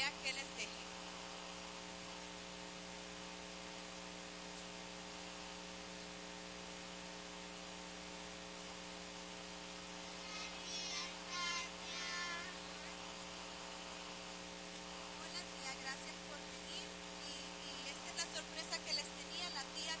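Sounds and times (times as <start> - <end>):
electrical mains hum: 0.0 - 20.0
microphone hiss: 0.0 - 20.0
faint high voices: 10.2 - 13.0.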